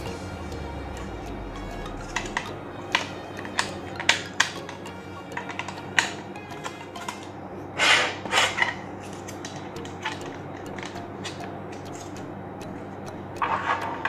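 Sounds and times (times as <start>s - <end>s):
plastic toy parts clicking: 2.0s - 14.0s
plastic scraping slide: 7.8s - 9.4s.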